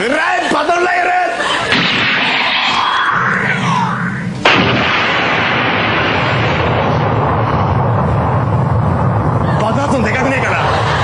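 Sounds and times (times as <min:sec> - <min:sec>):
explosions and gunfire: 0:01.7 - 0:09.5
falling tone: 0:01.7 - 0:09.6.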